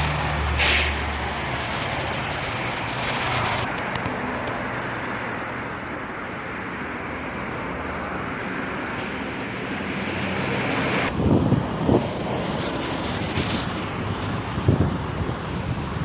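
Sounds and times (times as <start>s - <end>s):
highway traffic noise: 0.0s - 16.0s
wind buffeting the microphone: 11.1s - 16.0s.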